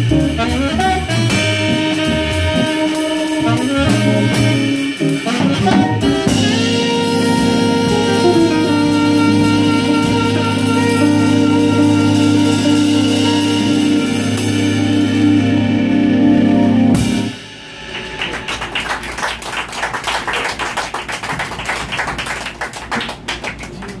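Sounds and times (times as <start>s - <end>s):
jazz band holding chord: 0.0s - 19.5s
audience clapping: 17.9s - 24.0s.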